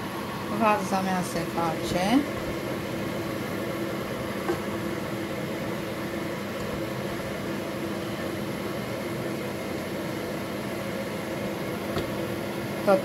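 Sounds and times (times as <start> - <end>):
range hood fan humming: 0.0 - 13.0.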